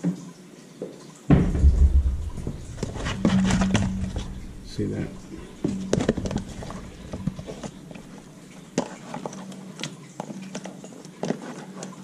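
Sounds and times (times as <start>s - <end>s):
fish tapping plastic tub: 1.3s - 9.4s.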